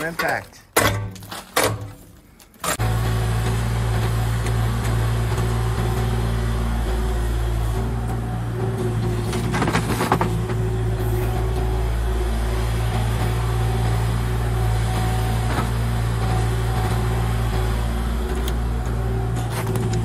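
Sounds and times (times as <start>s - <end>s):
dirt and stones dropping into truck bed: 0.0s - 2.8s
excavator diesel engine running: 2.6s - 20.0s.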